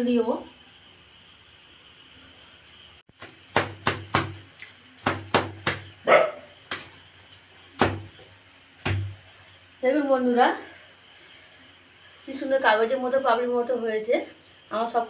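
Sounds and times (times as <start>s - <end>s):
hands slapping flatbread: 3.2s - 6.0s, 6.6s - 7.0s, 8.8s - 9.2s.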